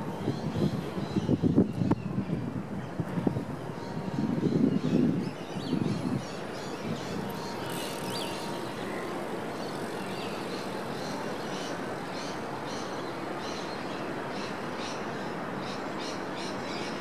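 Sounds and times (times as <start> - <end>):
city traffic noise: 0.0 - 17.0
birds chirping: 4.6 - 13.6.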